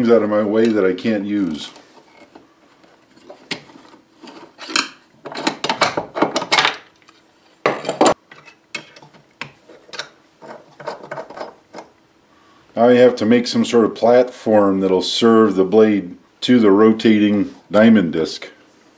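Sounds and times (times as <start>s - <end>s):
metal parts clinking and scraping: 3.1s - 6.9s.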